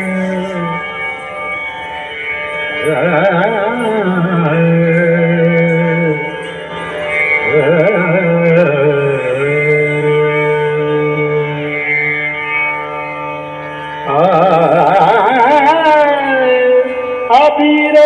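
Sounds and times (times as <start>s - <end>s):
devotional song over loudspeaker: 2.8s - 6.4s, 7.4s - 12.2s, 14.0s - 18.0s.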